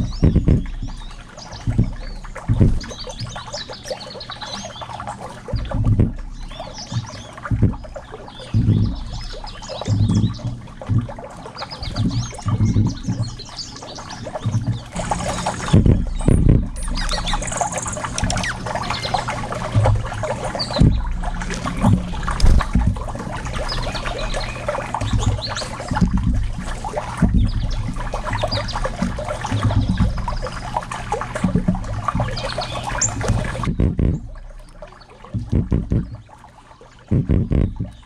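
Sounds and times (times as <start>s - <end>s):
low knocks: 0.0s - 1.0s, 1.6s - 3.3s, 7.0s - 7.9s, 14.5s - 30.4s, 33.1s - 34.6s, 35.4s - 36.3s, 37.1s - 38.0s
birds pecking seed and shells: 14.7s - 20.0s.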